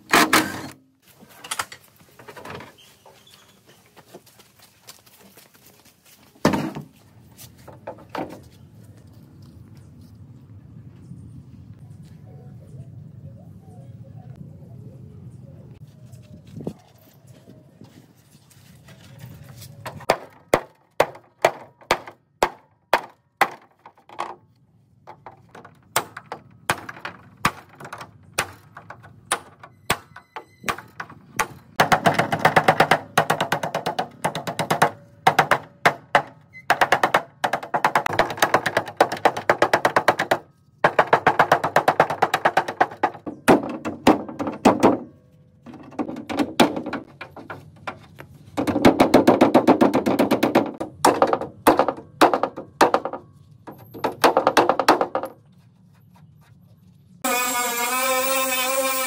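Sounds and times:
hammer striking steel frame: 25.9s - 45.2s.

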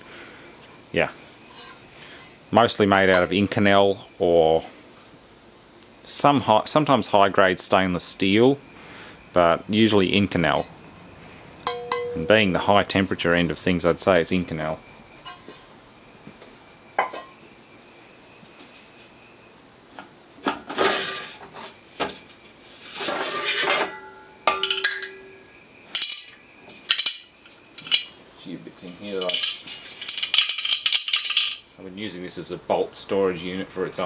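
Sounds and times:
ringing metal tones: 11.6s - 12.6s, 23.3s - 28.2s
sheet metal clanking and scraping: 20.5s - 21.8s, 22.9s - 25.4s.

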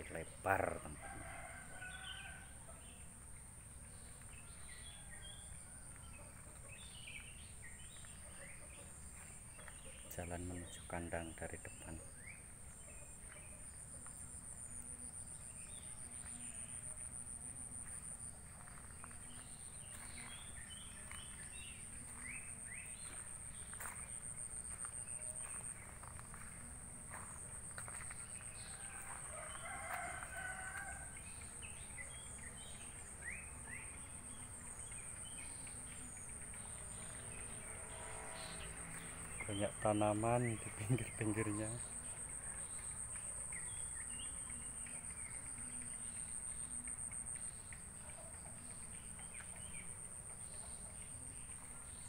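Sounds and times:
rooster crowing: 0.8s - 2.8s, 28.3s - 31.3s.

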